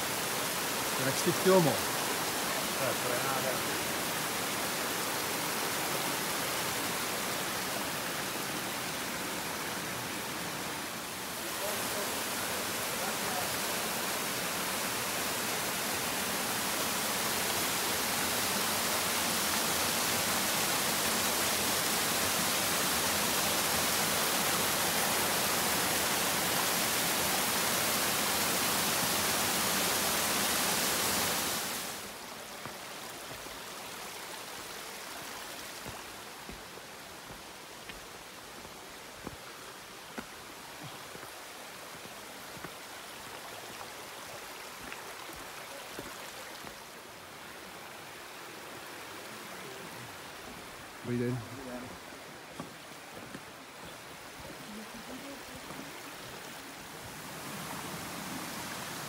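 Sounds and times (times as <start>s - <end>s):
stream water rushing: 0.0s - 59.0s.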